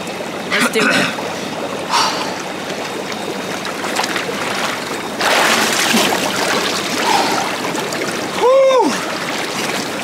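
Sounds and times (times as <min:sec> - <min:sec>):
water splashing in tub: 0:02.6 - 0:10.0.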